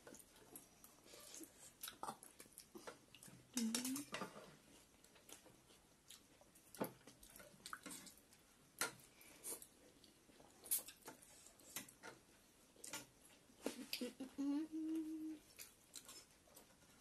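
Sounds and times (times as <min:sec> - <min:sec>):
chewing: 0:00.0 - 0:04.0, 0:04.6 - 0:12.2, 0:15.4 - 0:17.0.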